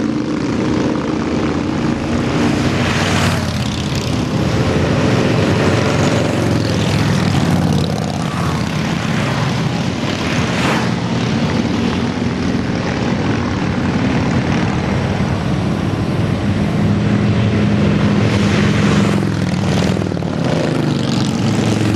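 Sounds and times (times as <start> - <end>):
motorcycle engines droning: 0.0 - 21.9.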